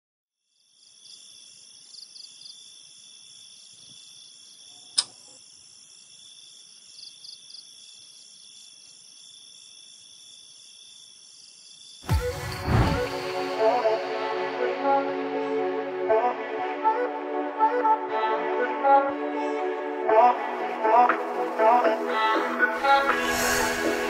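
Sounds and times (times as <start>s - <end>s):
crickets chirping: 0.5s - 12.9s, 21.3s - 24.0s
sharp click: 4.9s - 5.3s.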